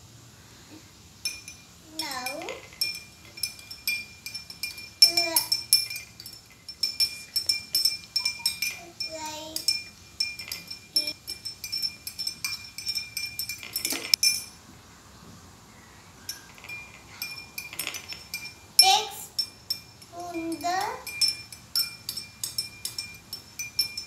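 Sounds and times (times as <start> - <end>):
spoon clinking in a glass: 1.2 - 14.6, 16.3 - 24.0.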